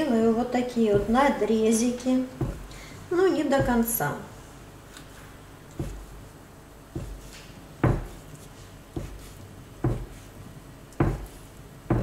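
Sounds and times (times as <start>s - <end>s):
knife chopping onto wooden board: 0.9s - 1.3s, 2.4s - 2.8s, 3.6s - 3.9s, 5.7s - 6.1s, 6.9s - 8.3s, 8.9s - 10.3s, 11.0s - 12.0s.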